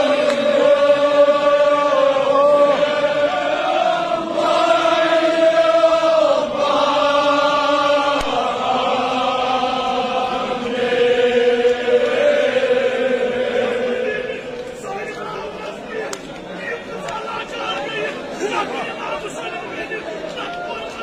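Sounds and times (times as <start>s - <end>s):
men chanting in unison: 0.0s - 15.8s.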